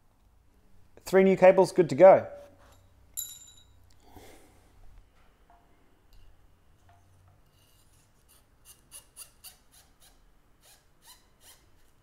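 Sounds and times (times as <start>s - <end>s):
metallic clink: 2.7s - 3.9s.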